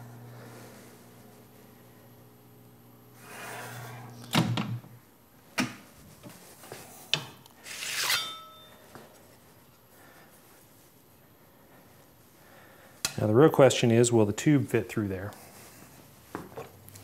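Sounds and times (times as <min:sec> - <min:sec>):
metal plate scraping and ringing: 0:07.8 - 0:08.8.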